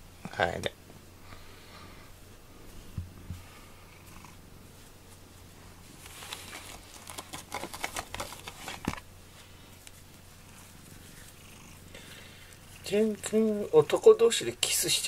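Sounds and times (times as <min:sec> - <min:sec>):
cat purring: 0:01.4 - 0:08.2, 0:09.4 - 0:15.0
scratchy rustling on cardboard: 0:04.8 - 0:11.4.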